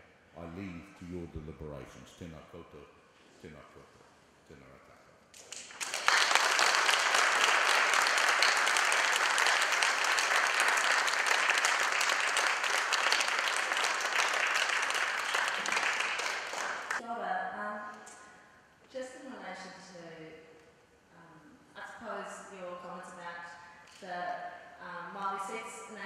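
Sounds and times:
audience applauding: 5.4s - 17.0s.

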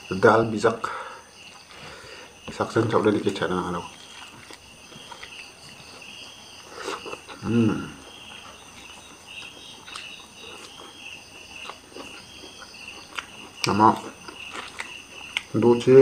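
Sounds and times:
crickets chirping: 0.0s - 16.0s
faint eating clicks: 8.3s - 15.9s.

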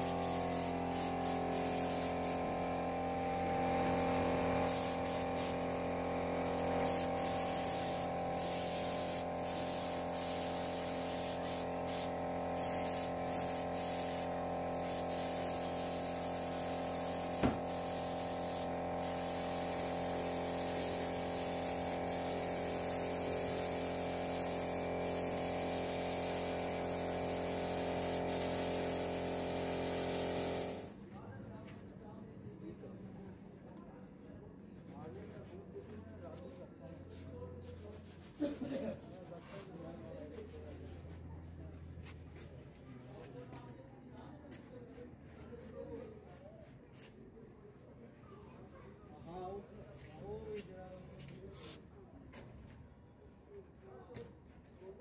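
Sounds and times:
spray gun hissing: 0.0s - 2.7s, 4.4s - 30.9s.

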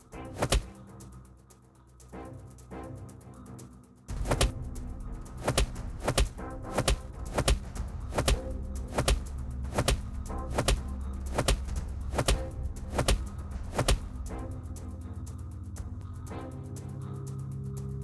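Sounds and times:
dramatic background music: 0.0s - 18.0s
punch impacts: 5.4s - 9.2s, 9.8s - 10.0s.

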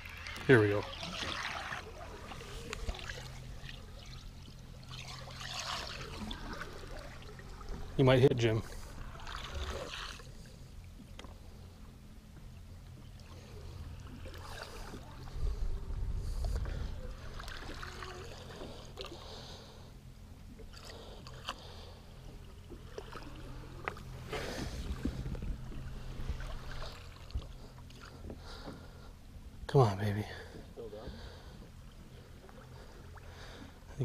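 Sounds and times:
steady low hum: 0.0s - 34.0s
water swishing and splashing: 0.0s - 34.0s
strong low rumble: 14.8s - 17.9s, 23.4s - 29.7s.

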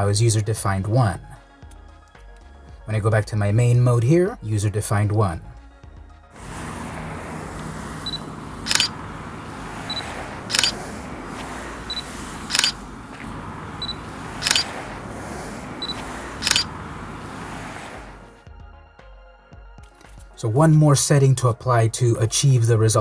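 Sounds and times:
autofocus beep: 8.0s - 9.0s, 9.9s - 10.8s, 11.9s - 12.8s, 13.8s - 14.7s, 15.8s - 16.7s
camera mirror and shutter clack: 8.7s - 8.9s, 12.5s - 12.8s, 14.4s - 14.7s.

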